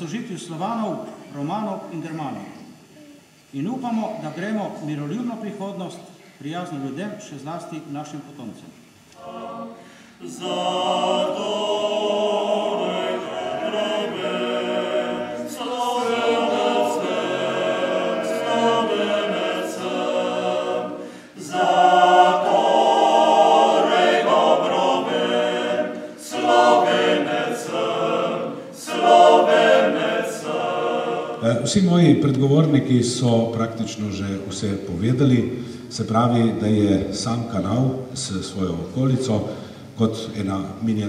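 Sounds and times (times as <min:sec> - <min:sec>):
men's choir singing a cappella: 0:09.2 - 0:32.2.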